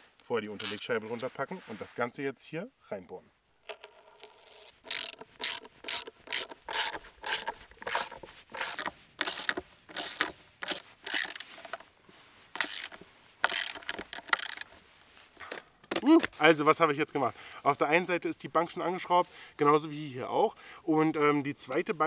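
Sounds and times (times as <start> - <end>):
ratchet wrench clicking: 3.8 - 11.4, 12.6 - 14.6.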